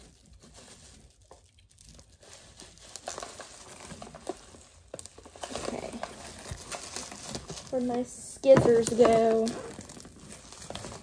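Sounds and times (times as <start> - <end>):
cardboard box being handled: 2.2 - 11.0.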